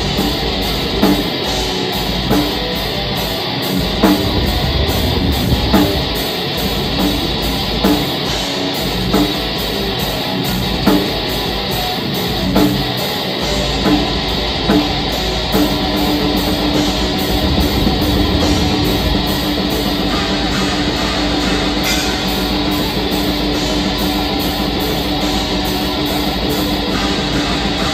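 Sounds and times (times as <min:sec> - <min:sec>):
metal band playing live: 0:00.0 - 0:27.9.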